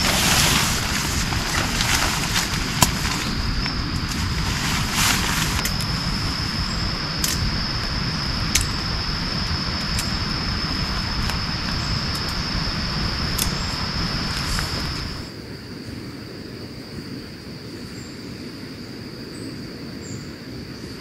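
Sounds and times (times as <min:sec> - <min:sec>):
low rushing noise: 0:00.0 - 0:15.3
high insect drone: 0:00.0 - 0:21.0.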